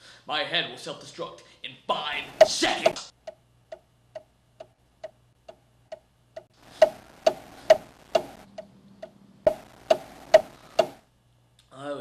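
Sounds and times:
clock-like ticking: 2.3 - 11.0
heavy knock: 2.4 - 3.1, 9.5 - 11.0.

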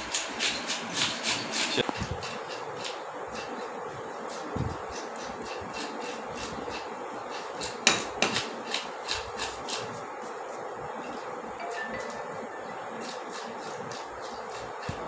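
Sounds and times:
knife chopping fish on wooden block: 7.6 - 9.9.

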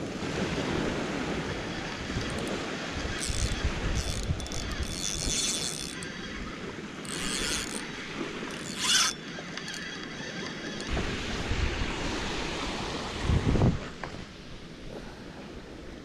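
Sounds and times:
ocean surf on a beach: 0.0 - 4.0, 10.2 - 16.0
wind buffeting the microphone: 10.9 - 16.0.

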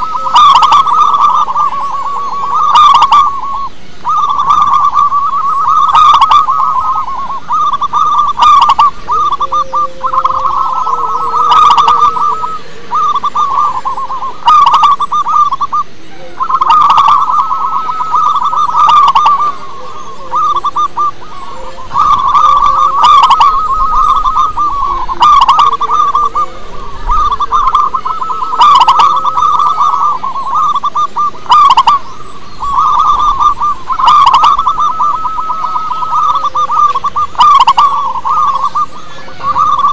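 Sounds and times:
dove trilled cooing: 0.0 - 39.9.

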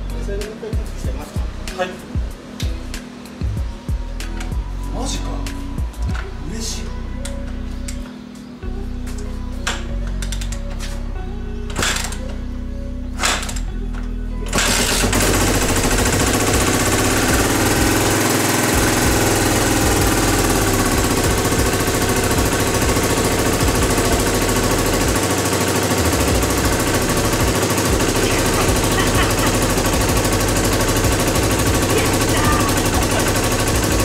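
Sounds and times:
motorcycle engine starting and idling: 11.6 - 34.0.

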